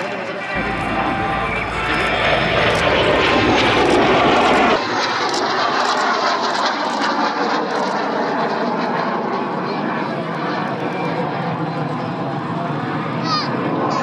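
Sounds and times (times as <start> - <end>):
jet engine noise: 0.0 - 14.0.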